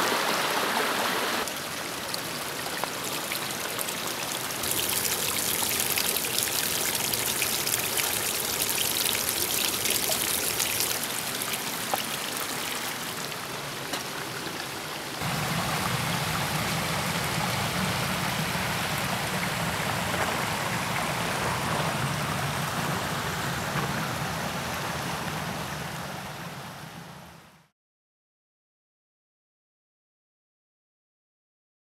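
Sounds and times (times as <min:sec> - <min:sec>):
river flowing over rocks: 0:00.0 - 0:27.6
water splashing down rock face: 0:15.2 - 0:25.4.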